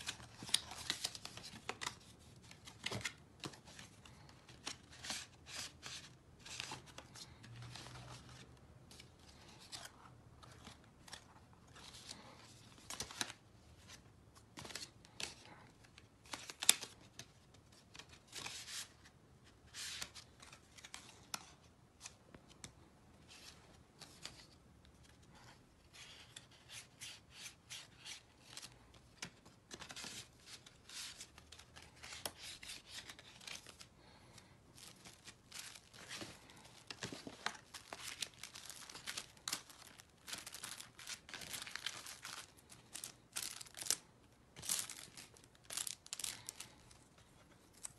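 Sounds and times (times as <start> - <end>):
cardstock rustling and scraping: 34.8 - 44.0.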